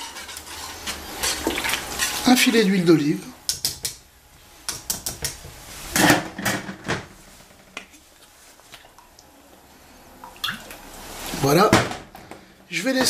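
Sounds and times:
kitchen utensils clattering: 0:00.0 - 0:02.5, 0:06.0 - 0:07.1.

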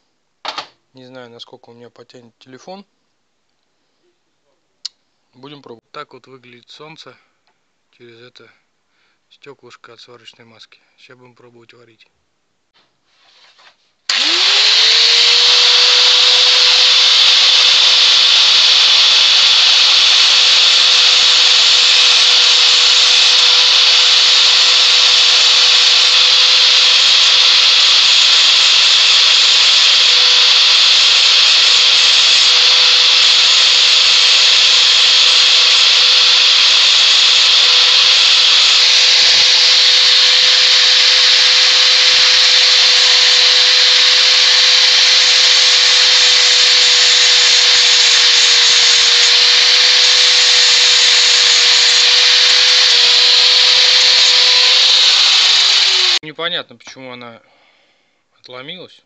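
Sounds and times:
angle grinder grinding steel: 0:14.1 - 0:56.2.

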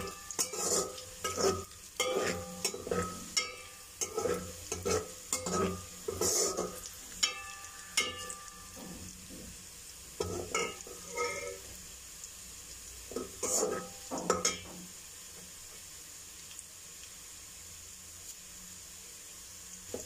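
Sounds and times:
metal skimmer scraping a pot: 0:00.0 - 0:07.4, 0:10.2 - 0:11.7, 0:13.2 - 0:14.6
onion sizzling in hot oil: 0:00.0 - 0:20.0.

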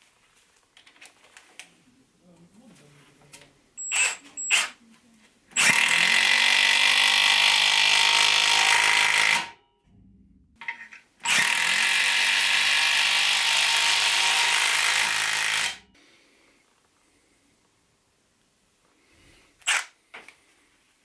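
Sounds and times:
impact wrench hammering: 0:05.6 - 0:09.6, 0:10.6 - 0:15.8.

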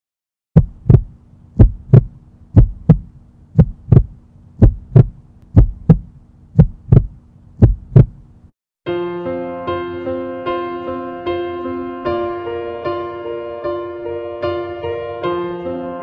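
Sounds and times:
heartbeat thumps: 0:00.6 - 0:08.3
faint steady hum: 0:00.6 - 0:08.5
piano music: 0:08.9 - 0:16.0.

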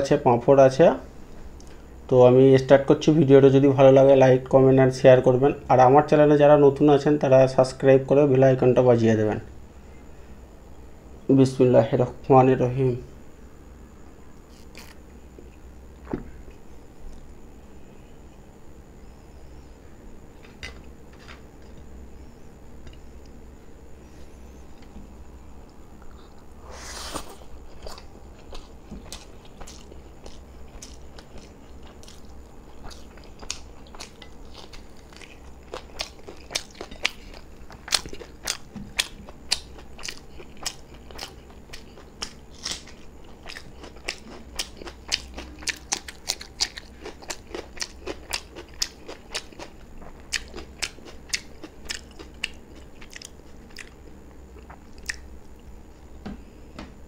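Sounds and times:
steady low hum: 0:00.0 - 0:57.0
person chewing food: 0:14.4 - 0:17.3, 0:26.0 - 0:55.8.

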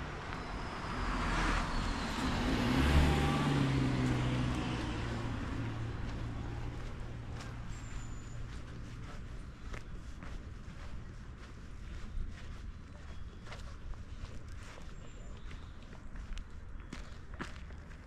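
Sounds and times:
car driving past: 0:00.0 - 0:08.8
low engine hum: 0:00.0 - 0:18.0.

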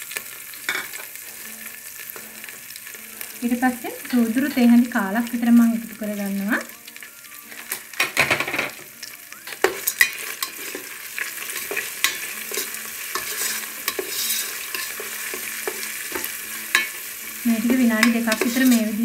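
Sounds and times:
faint sizzle of frying spices: 0:00.0 - 0:19.0
spoon scraping and tapping pot: 0:09.5 - 0:19.0.

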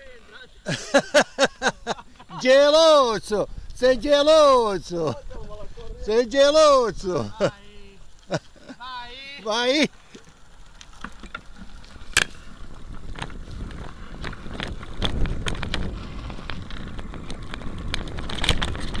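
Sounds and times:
wind buffeting microphone: 0:01.4 - 0:08.1, 0:10.5 - 0:19.0
tyres rumbling on rough asphalt: 0:09.4 - 0:19.0
bike clicks and rattles: 0:09.9 - 0:19.0.

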